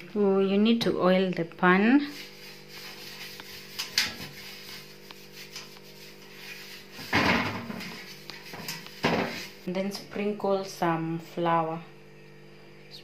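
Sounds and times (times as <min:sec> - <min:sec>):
steady low hum: 0:00.0 - 0:13.0
hand rubbing metal tray: 0:02.1 - 0:09.7.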